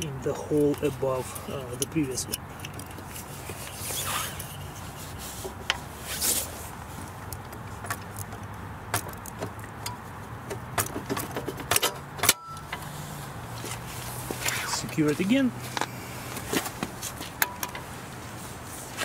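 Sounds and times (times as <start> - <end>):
metal clicks and rattles of bike rack: 0.0 - 4.6, 7.2 - 12.9, 16.5 - 17.9.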